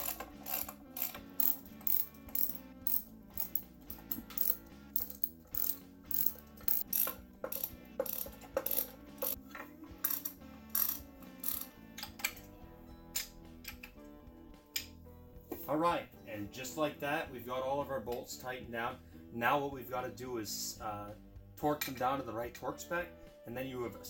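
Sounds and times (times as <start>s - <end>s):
hand ratchet clicking: 0.0s - 9.4s, 10.0s - 12.4s.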